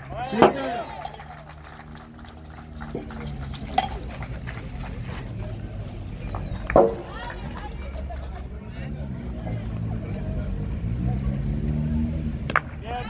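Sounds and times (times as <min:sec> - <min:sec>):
steel boules clacking: 0:03.6 - 0:04.1.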